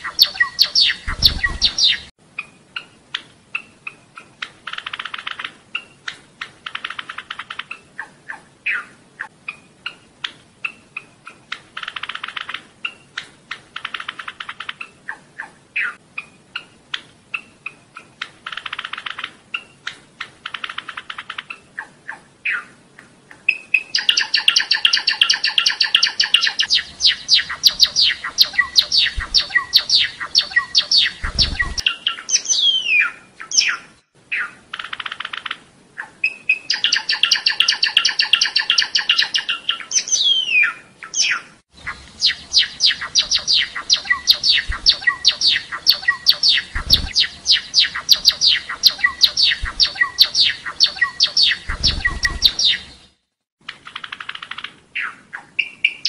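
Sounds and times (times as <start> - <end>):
sparrow singing: 0.0 - 6.0, 23.5 - 53.2.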